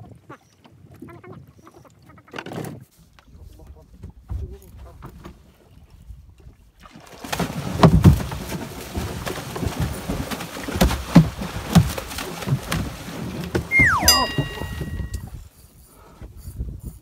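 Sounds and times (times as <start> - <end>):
fish splashing in water: 6.8 - 15.1
falling whistle-like tone: 13.7 - 15.2
steady ringing tones: 14.0 - 15.2.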